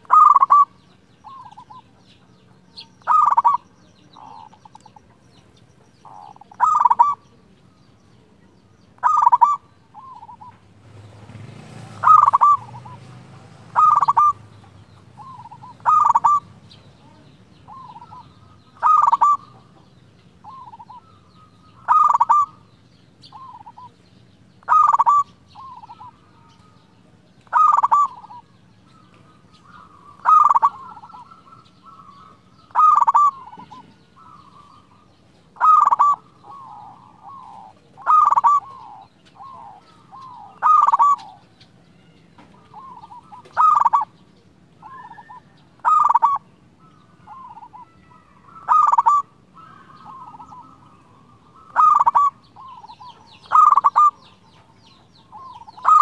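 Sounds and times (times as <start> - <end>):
dove cooing song: 0.0 - 56.0.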